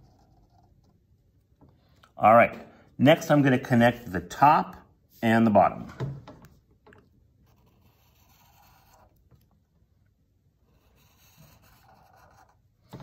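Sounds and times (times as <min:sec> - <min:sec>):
felt-tip marker scratching on paper: 0:00.0 - 0:01.0, 0:07.4 - 0:09.3, 0:10.6 - 0:12.8.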